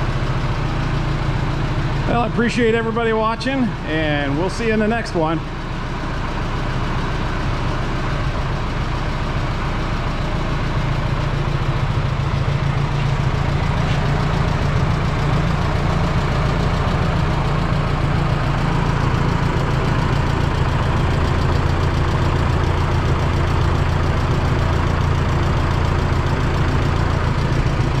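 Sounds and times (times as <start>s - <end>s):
tractor engine idling: 0.0s - 28.0s.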